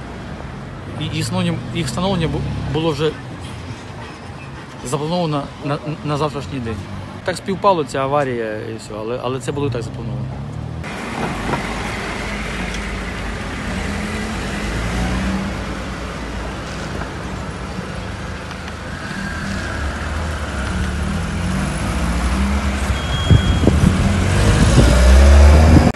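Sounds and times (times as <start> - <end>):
car engines running low: 10.3 - 25.9.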